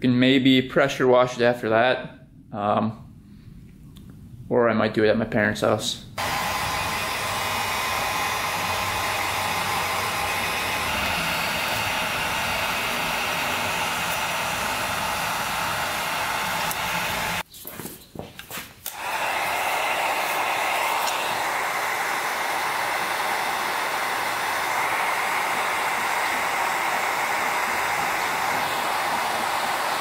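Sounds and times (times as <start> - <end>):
heat gun blowing hot air: 6.2 - 17.4, 18.8 - 30.0.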